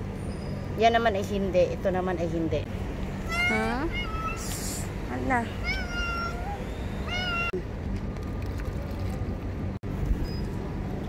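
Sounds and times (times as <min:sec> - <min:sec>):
low street rumble: 0:00.0 - 0:11.0
cat meowing: 0:03.2 - 0:04.6, 0:05.6 - 0:07.6.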